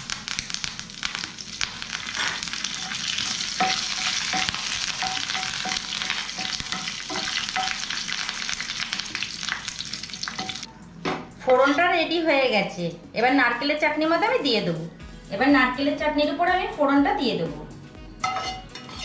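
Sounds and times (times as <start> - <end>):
spices sizzling in hot oil: 0.0 - 10.7
wooden spatula scraping pan: 18.4 - 19.0.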